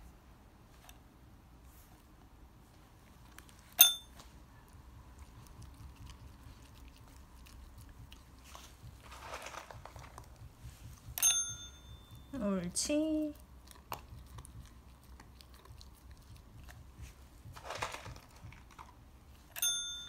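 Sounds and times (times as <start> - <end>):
puppy chewing a treat: 3.0 - 11.2, 12.1 - 19.6
call bell ding: 11.2 - 12.4, 19.6 - 20.0.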